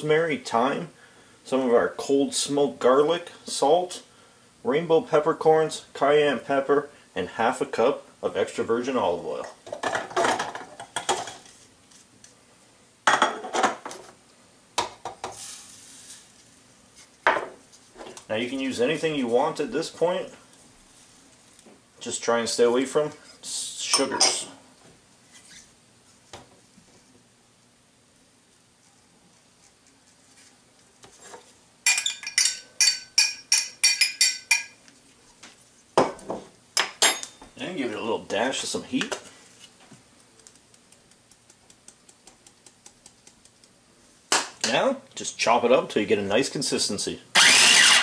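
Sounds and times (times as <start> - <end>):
glass bowls clinking on counter: 23.9 - 24.5, 31.8 - 34.8, 36.8 - 37.5.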